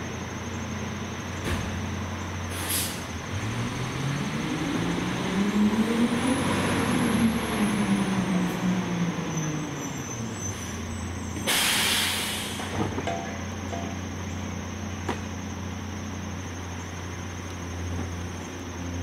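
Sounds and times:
garbage truck engine: 0.0 - 19.0
air brakes hissing: 2.4 - 3.2, 9.9 - 13.0.

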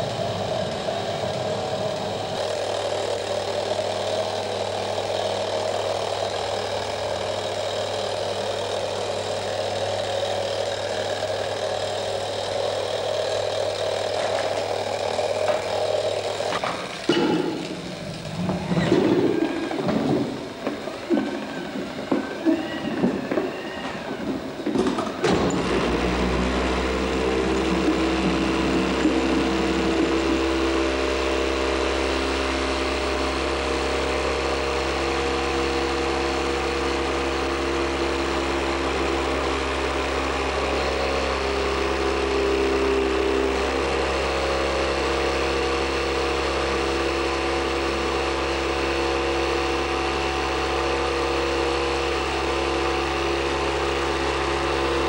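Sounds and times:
small geared electric motor: 0.0 - 55.0
clatter of knocks: 24.2 - 25.7.

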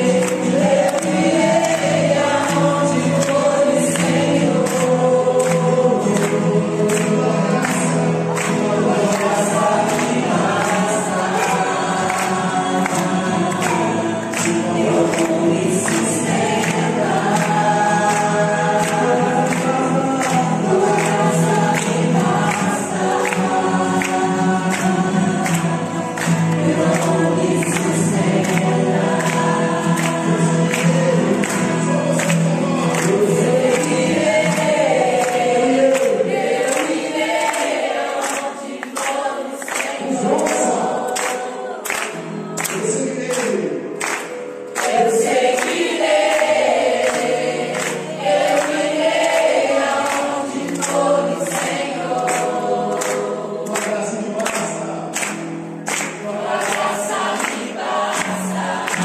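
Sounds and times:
group singing a worship song: 0.0 - 59.0
rhythmic hand-clapping: 0.0 - 59.0.

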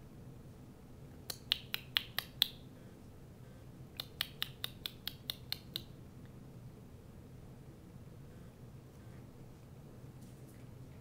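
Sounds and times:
sharp clicks made by person: 1.2 - 2.6, 4.0 - 5.9.

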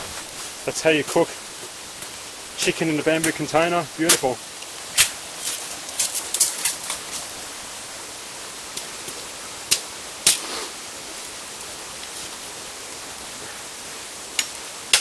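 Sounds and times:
stream water rushing: 0.0 - 15.0
bamboo cracking: 4.1 - 7.3
machete striking bamboo: 14.4 - 15.0.

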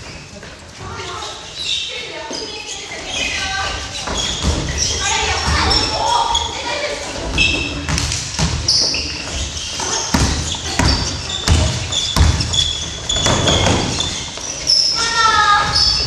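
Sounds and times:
sneakers squeaking: 0.0 - 16.0
basketball bouncing on wood floor: 7.3 - 8.6, 9.8 - 14.2.

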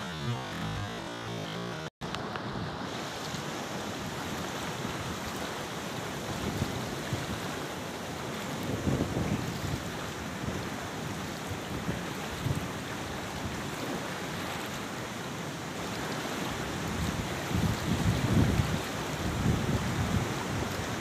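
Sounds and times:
river flowing: 0.0 - 21.0
wind buffeting microphone: 8.5 - 12.8, 16.7 - 21.0.

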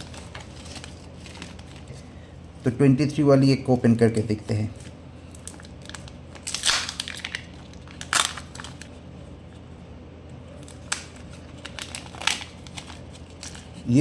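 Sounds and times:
plastic and foil crackling: 0.0 - 2.0, 4.7 - 9.0, 10.6 - 14.0.

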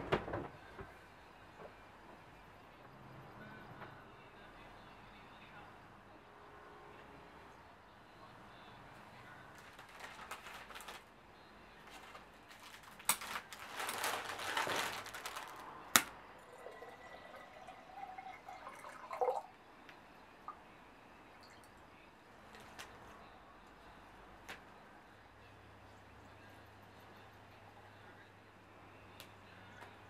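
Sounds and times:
cellophane crinkling: 9.5 - 11.1, 11.8 - 16.1
water pouring into jug: 16.4 - 19.6.

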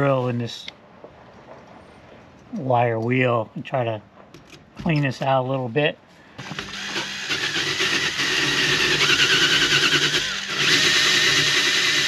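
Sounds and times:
drill motor whine: 6.4 - 12.0.

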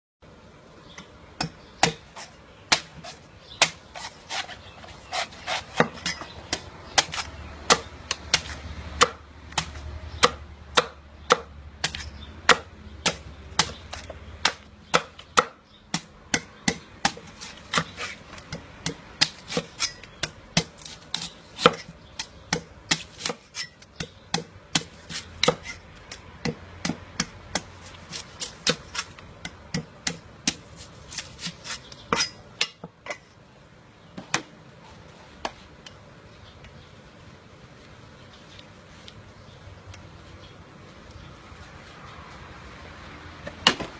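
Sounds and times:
knife chopping coconut husk: 1.4 - 32.9.

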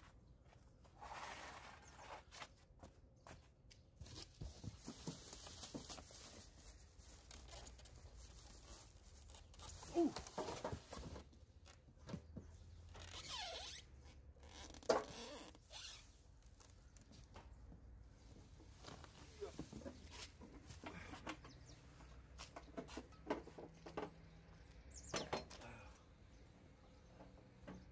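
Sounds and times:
plastic and cardboard rustling: 4.0 - 12.5.

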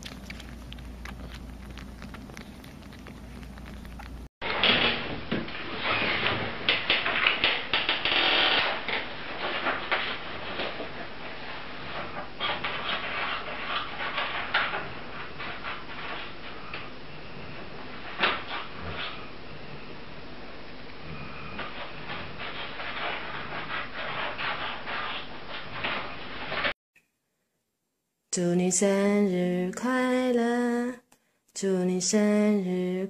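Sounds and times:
cat licking dog: 0.0 - 4.3
kittens suckling at bottles: 0.0 - 4.3.

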